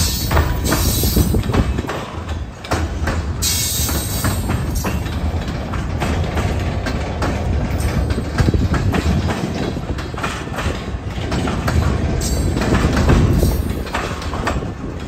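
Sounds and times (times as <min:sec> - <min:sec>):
rumble of wheels on rail: 0:00.0 - 0:15.0
clacks and clanks of couplers: 0:00.3 - 0:15.0.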